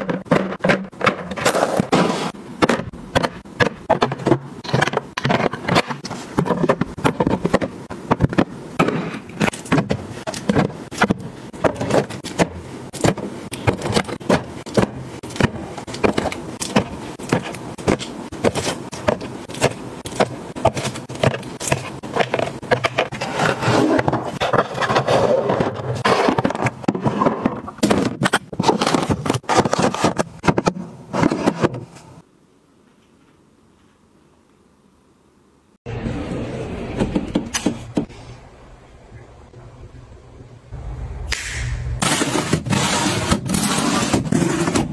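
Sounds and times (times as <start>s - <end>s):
items tapping on plastic bins: 0.0s - 32.2s.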